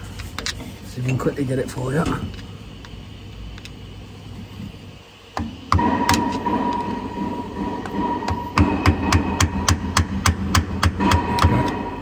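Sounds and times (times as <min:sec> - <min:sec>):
steady hum: 0:00.0 - 0:12.0
thin high whine: 0:05.7 - 0:10.3, 0:10.9 - 0:12.0
metal-on-metal tapping: 0:05.7 - 0:12.0.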